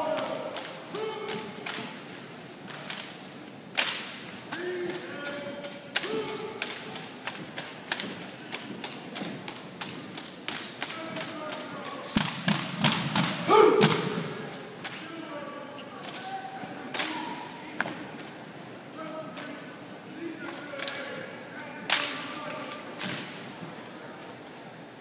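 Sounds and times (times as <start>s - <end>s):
person shouting: 0.0s - 1.6s, 13.4s - 14.3s, 16.2s - 17.5s
rifles knocking on hard floor: 6.0s - 15.0s.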